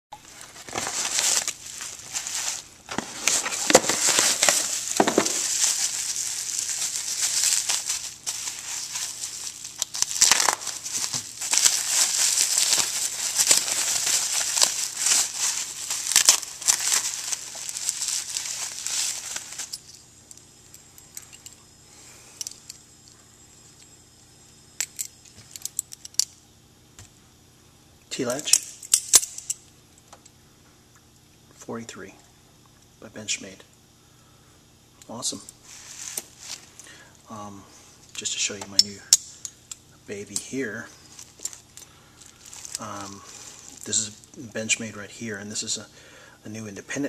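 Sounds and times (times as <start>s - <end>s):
bubble wrap crinkling: 0.2s - 20.0s, 35.6s - 36.8s, 41.0s - 44.4s.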